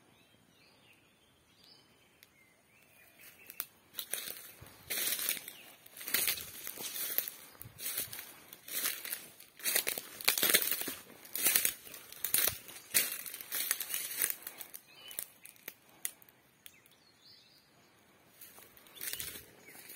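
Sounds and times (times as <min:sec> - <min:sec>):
footsteps crunching dry leaves: 0:03.2 - 0:16.2, 0:18.4 - 0:19.9.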